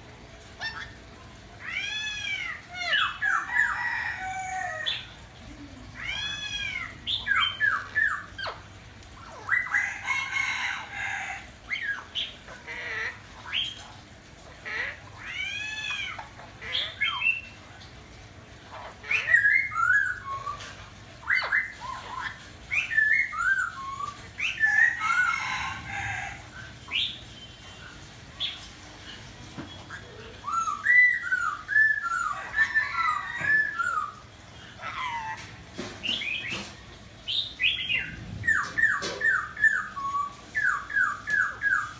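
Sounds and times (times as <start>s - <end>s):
parrot squawking and whistling: 18.8s - 20.6s, 29.9s - 34.2s, 34.8s - 35.5s, 37.9s - 41.9s.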